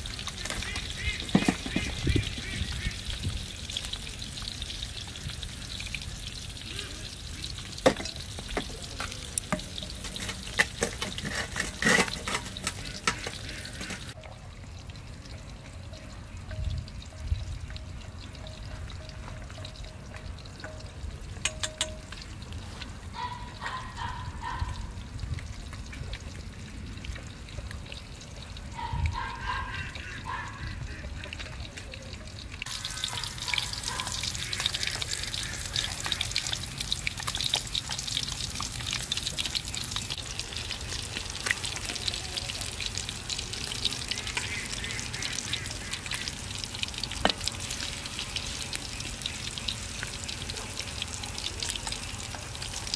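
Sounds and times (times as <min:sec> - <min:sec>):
fish sizzling in hot oil: 0:00.0 - 0:52.9
chopsticks clicking on metal bowl: 0:21.4 - 0:22.2.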